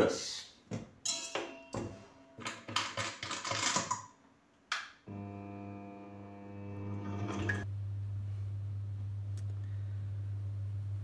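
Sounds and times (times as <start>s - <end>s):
stand mixer motor humming: 5.1s - 7.6s.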